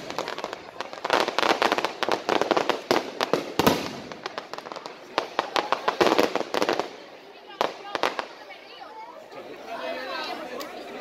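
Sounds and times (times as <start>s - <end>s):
fireworks bursting: 0.0s - 8.6s.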